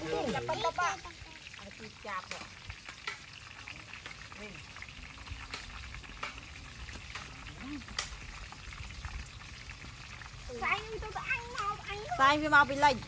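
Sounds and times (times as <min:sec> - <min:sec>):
food sizzling in hot oil: 0:00.0 - 0:13.0
oil crackles: 0:00.0 - 0:13.0.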